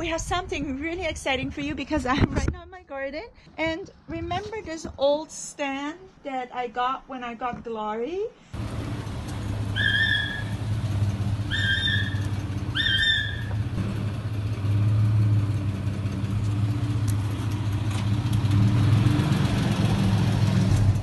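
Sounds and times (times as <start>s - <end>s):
engine idling drone: 8.6s - 21.0s.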